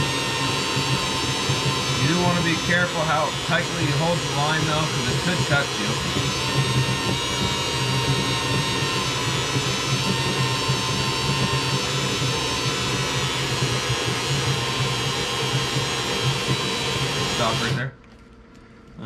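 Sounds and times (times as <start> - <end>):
cordless drill motor whine: 0.0 - 18.0.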